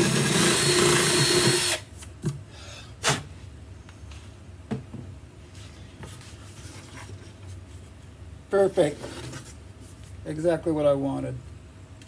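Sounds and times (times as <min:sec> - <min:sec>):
cordless drill stopping: 0:00.0 - 0:01.8.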